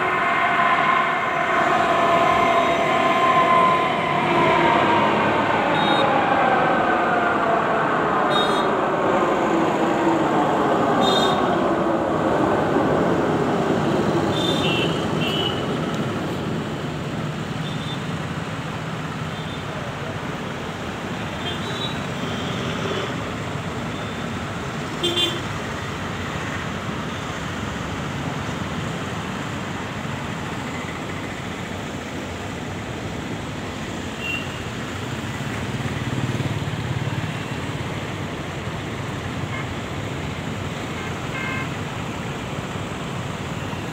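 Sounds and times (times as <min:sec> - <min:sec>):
road traffic: 0:00.0 - 0:43.9
vehicle horn toots: 0:41.3 - 0:41.7.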